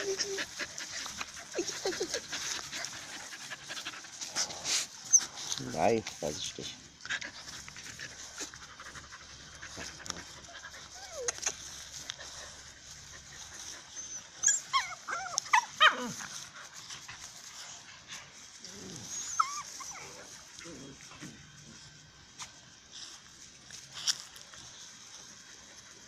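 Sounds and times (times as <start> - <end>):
puppy yelping and whimpering: 0.0 - 2.9, 10.5 - 11.7, 13.9 - 16.2, 19.0 - 20.4
dogs play-fighting: 0.0 - 5.7, 6.9 - 21.8.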